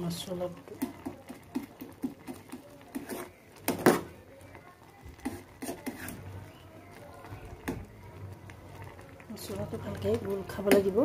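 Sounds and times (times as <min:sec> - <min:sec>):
metal spatula scraping metal pot: 0:02.9 - 0:04.0, 0:05.2 - 0:06.4.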